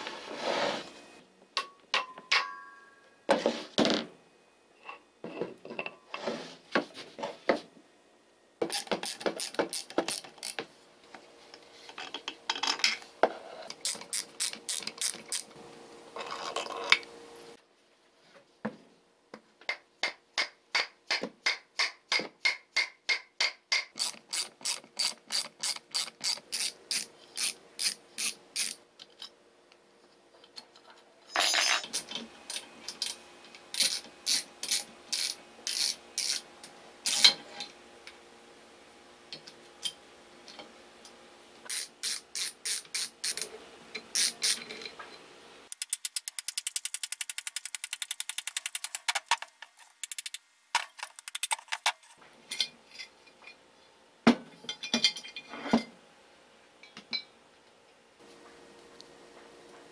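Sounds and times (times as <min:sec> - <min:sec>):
rapid mechanical clicking: 0:45.7 - 0:50.4.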